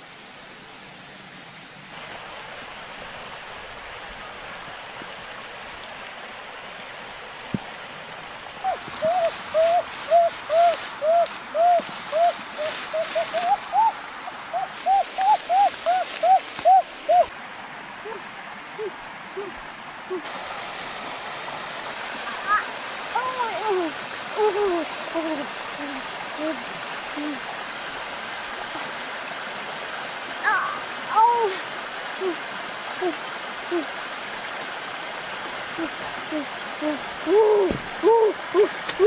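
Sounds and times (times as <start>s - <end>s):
background hiss: 0.0s - 39.0s
lower falling bird notes: 8.6s - 17.3s
bird hooting: 8.7s - 17.3s, 18.0s - 18.2s, 18.8s - 20.2s, 33.0s - 33.9s, 35.8s - 39.0s.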